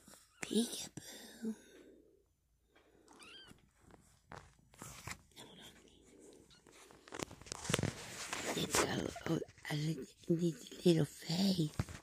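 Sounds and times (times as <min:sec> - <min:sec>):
soft rustling and clicks: 0:02.7 - 0:09.8, 0:11.5 - 0:12.0.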